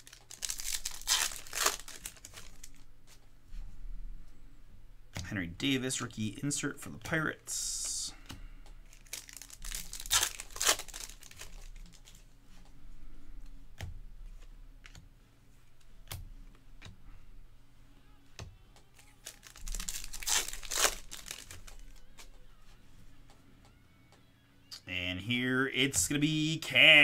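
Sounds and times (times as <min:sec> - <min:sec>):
foil wrapper crinkling: 0:00.0 - 0:02.9, 0:08.9 - 0:12.2, 0:19.0 - 0:22.4.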